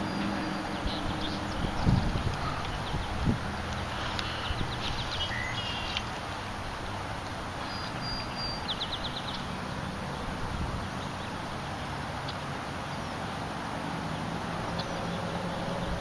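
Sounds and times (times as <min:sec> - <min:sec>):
steady low rumble: 0:00.0 - 0:05.4
small birds chirping: 0:00.0 - 0:06.4, 0:07.6 - 0:09.7, 0:14.1 - 0:16.0.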